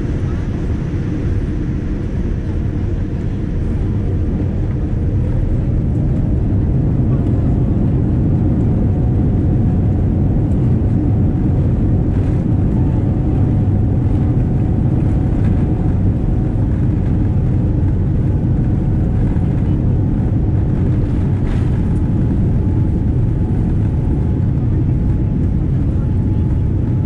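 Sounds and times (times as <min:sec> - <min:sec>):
jet engines rumbling: 0:00.0 - 0:27.0.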